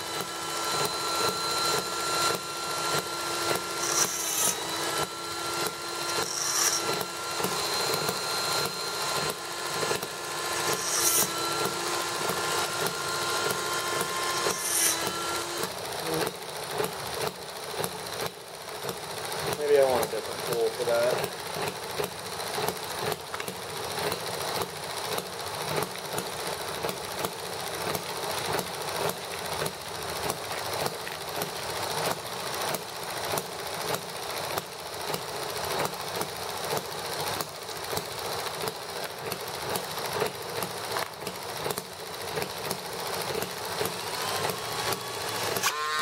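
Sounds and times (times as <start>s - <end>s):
grinding stone scraping metal pipe: 0.0s - 16.3s
rotary tool motor whining: 0.0s - 46.0s.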